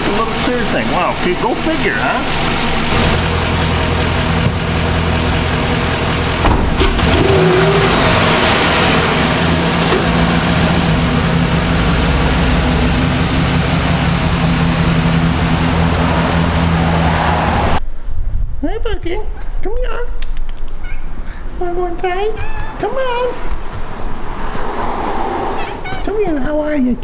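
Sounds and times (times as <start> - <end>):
truck engine running: 0.0 - 17.8
car door shutting: 6.4 - 7.3.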